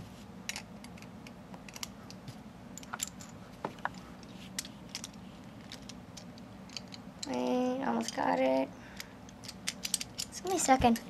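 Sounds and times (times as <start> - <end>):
clicks and taps of toy parts: 9.0 - 11.0.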